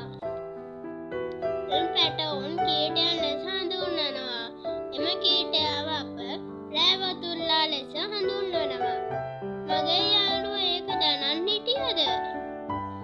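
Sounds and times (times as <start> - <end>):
high child-like singing voice: 9.7 - 12.1.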